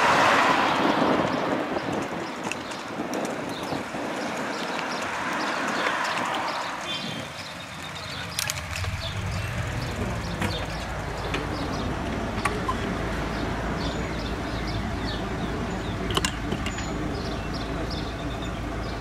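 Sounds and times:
rumble of car engines: 0:00.0 - 0:19.0
bicycle clicks and rattles: 0:01.3 - 0:12.8.

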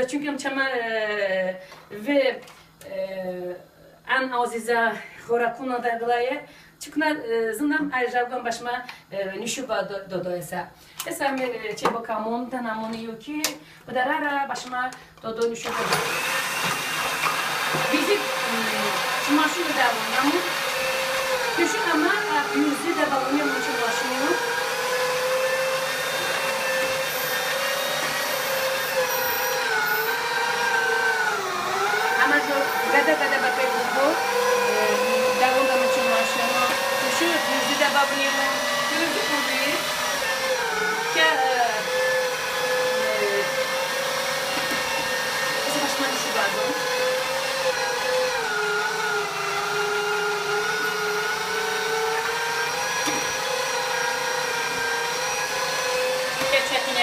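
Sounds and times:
meat grinder motor running: 0:15.7 - 0:57.0.

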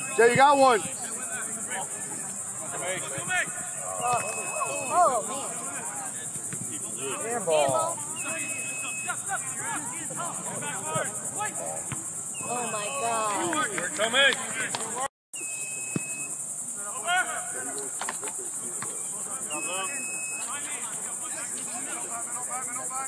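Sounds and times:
distant shouts: 0:00.0 - 0:15.0
insect chorus droning: 0:00.0 - 0:23.0.

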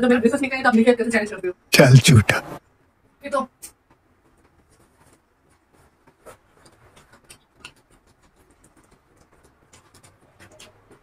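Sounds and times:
food being chewed: 0:04.6 - 0:11.0.

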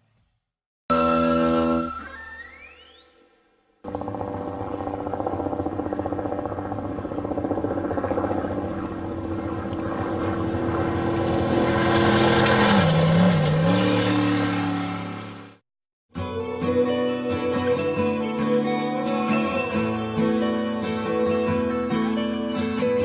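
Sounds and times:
race engine running roughly: 0:03.9 - 0:15.6.

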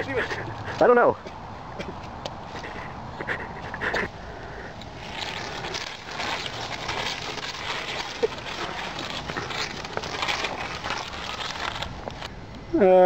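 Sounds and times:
mud squelching: 0:00.0 - 0:12.4
person breathing hard: 0:02.5 - 0:05.8.

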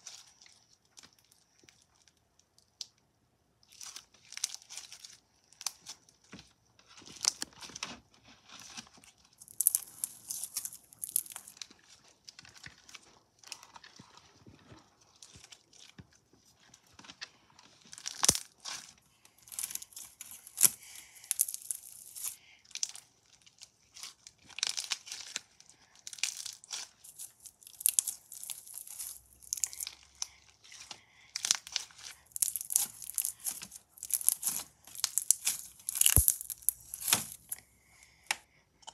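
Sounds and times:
sticky crackling slime squeezed: 0:26.1 - 0:37.6.

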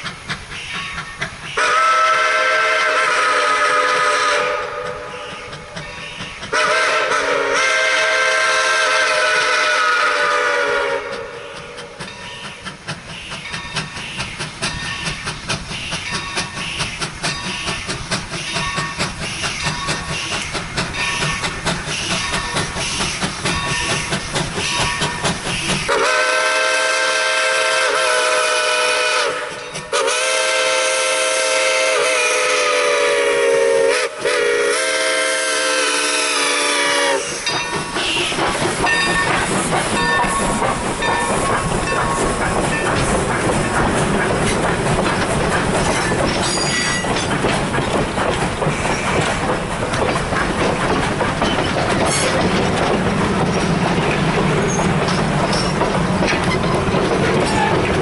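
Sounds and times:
rail noise: 0:00.0 - 0:58.0
steam locomotive exhaust chugging: 0:00.0 - 0:58.0
locomotive whistle blasts: 0:01.5 - 0:05.5, 0:06.5 - 0:11.8, 0:25.5 - 0:38.3.

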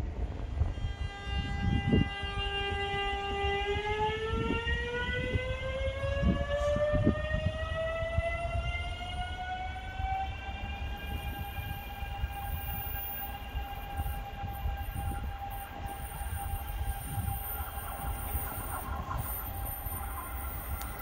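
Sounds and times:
electric train motors whining: 0:00.2 - 0:21.0.

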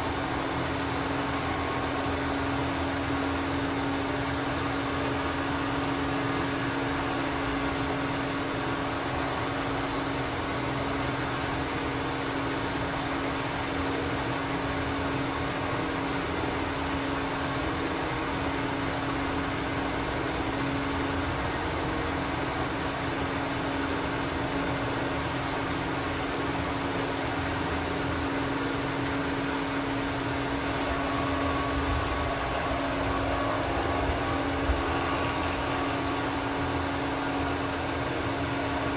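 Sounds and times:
milling machine humming: 0:00.0 - 0:38.9.

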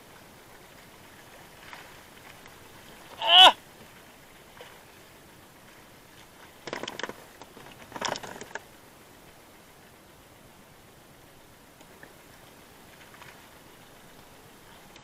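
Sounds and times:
fish splashing and clattering: 0:06.4 - 0:08.7.

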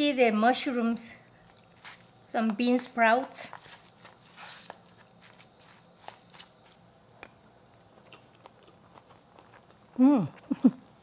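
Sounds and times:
spoon mixing food squishing: 0:01.3 - 0:07.0.

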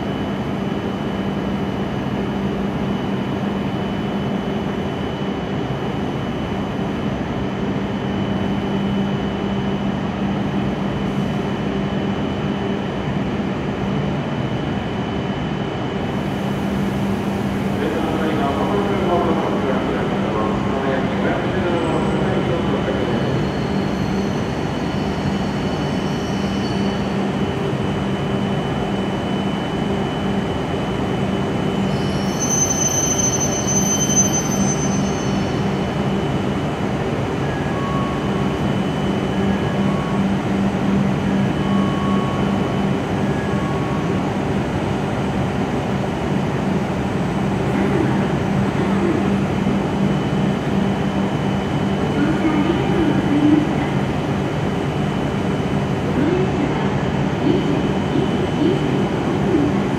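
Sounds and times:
train low hum: 0:00.0 - 0:59.9
high brake squeal: 0:23.3 - 0:27.1, 0:31.8 - 0:35.6.

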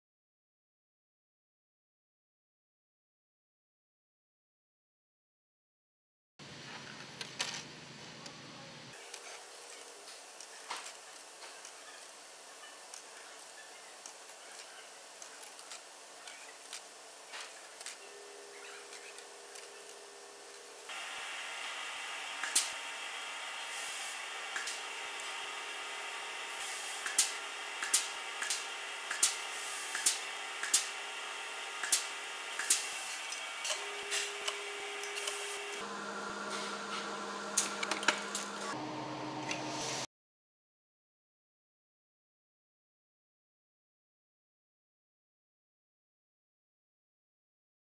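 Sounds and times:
steady machine hum: 0:18.0 - 0:40.0.

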